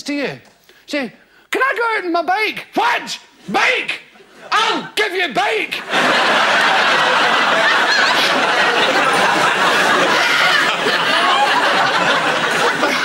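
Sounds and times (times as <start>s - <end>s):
large audience laughing: 5.7s - 13.0s.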